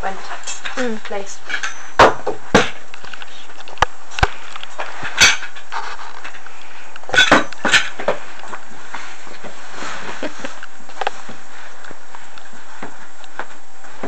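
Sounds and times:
steady hiss: 0:00.0 - 0:14.0
camp bed poles knocking and clinking: 0:07.1 - 0:08.2.

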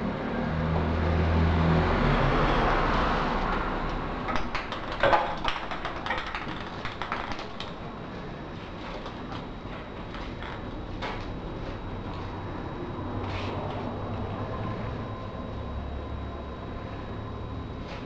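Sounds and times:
steady low hum: 0:00.0 - 0:18.0
plastic capsule clicking on tiles: 0:04.3 - 0:07.8.

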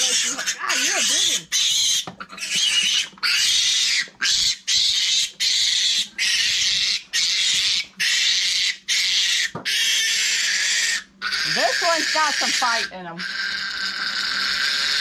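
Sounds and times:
piglet squealing: 0:00.0 - 0:15.0.

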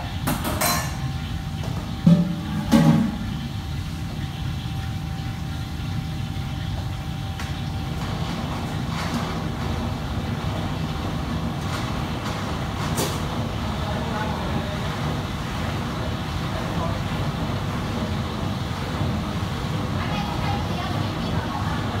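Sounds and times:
kitchen equipment humming: 0:00.0 - 0:22.0
metal cookware clanking: 0:00.3 - 0:01.3.

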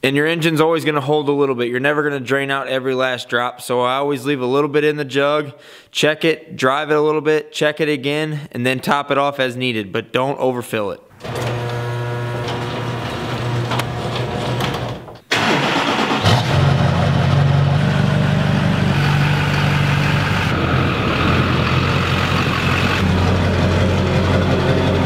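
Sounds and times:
diesel engine idling: 0:17.0 - 0:25.0.

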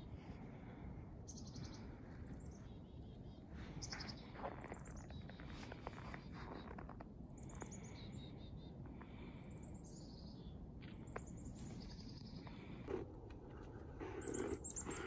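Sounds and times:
songbirds chirping: 0:00.1 - 0:15.0.

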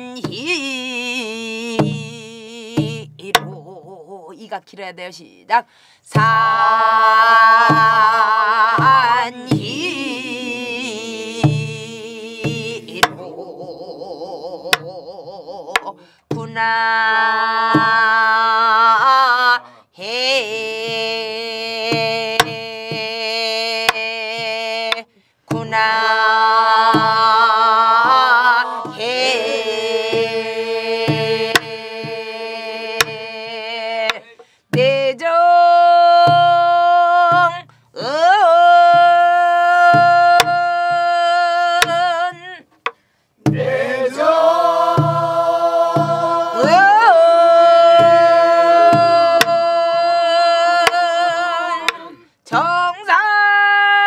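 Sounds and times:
person singing with vibrato: 0:00.0 - 0:04.4, 0:05.5 - 0:42.8, 0:43.4 - 0:54.0
barrel drum strokes: 0:06.1 - 0:13.4, 0:23.9 - 0:33.3, 0:39.8 - 0:52.8.

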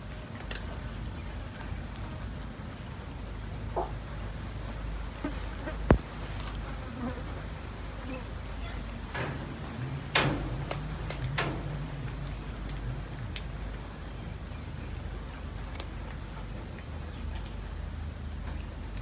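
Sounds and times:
flies buzzing: 0:05.1 - 0:09.0.

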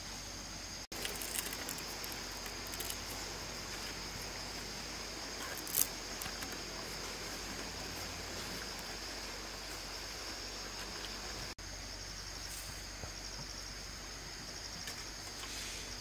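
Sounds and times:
dry bamboo strips rustling: 0:00.9 - 0:11.6.

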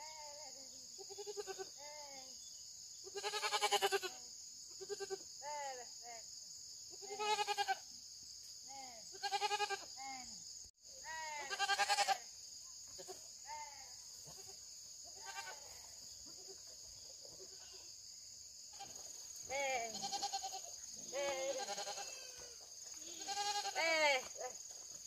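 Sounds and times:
young goats bleating: 0:00.0 - 0:02.4, 0:03.0 - 0:04.2, 0:04.8 - 0:05.2, 0:07.0 - 0:07.8, 0:09.1 - 0:10.0, 0:11.0 - 0:12.3, 0:13.0 - 0:14.6, 0:15.2 - 0:16.7, 0:17.4 - 0:17.9, 0:18.7 - 0:24.6.

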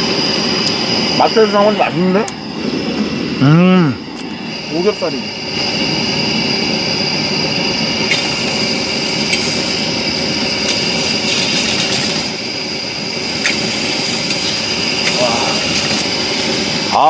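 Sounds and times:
pork sizzling on griddle: 0:08.1 - 0:17.0.

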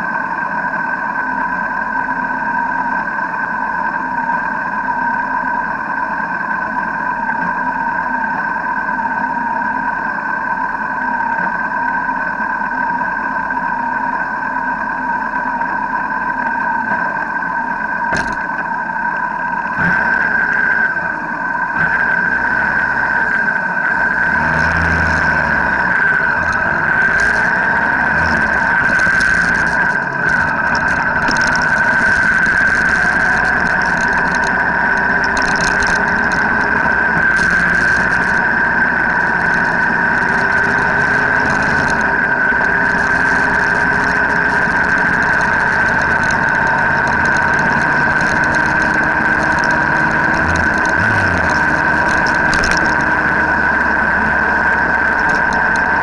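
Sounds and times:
high-pitched whine: 0:00.0 - 0:56.0
road noise: 0:14.5 - 0:56.0
motorcycle engine cruising: 0:19.8 - 0:56.0.

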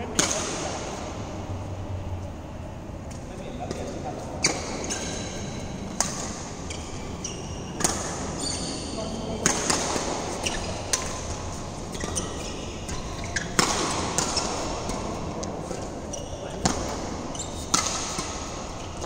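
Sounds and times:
racket striking shuttlecock: 0:00.0 - 0:01.0, 0:03.6 - 0:07.0, 0:07.7 - 0:08.4, 0:09.4 - 0:15.8, 0:16.5 - 0:19.0
shoes squeaking on court floor: 0:03.0 - 0:19.0.

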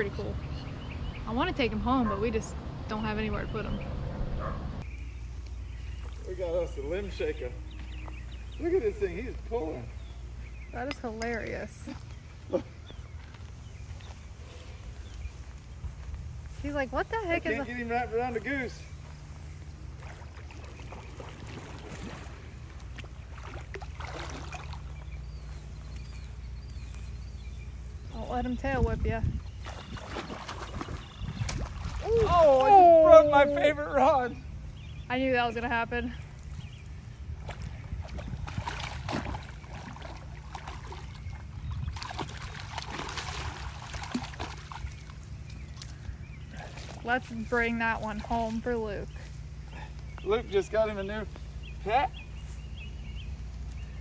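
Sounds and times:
wind rumbling on microphone: 0:00.0 - 0:06.2, 0:09.4 - 0:17.4, 0:18.9 - 0:33.0, 0:34.4 - 0:49.2
water splashing and sloshing: 0:10.8 - 0:27.1, 0:29.1 - 0:33.0, 0:36.2 - 0:49.7.

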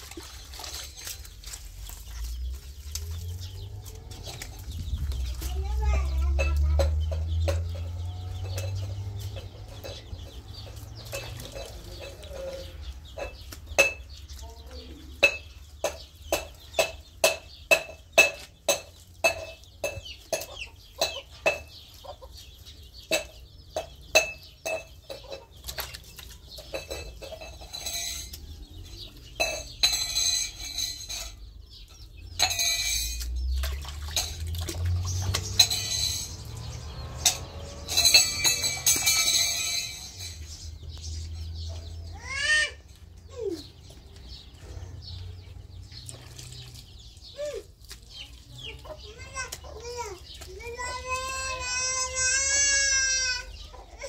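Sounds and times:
scraping and rustling: 0:00.0 - 0:14.4
chickens clucking: 0:00.0 - 0:54.0.

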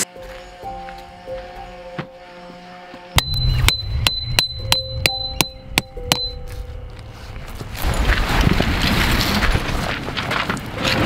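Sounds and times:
metal stake hammered into gravel: 0:03.2 - 0:06.4.

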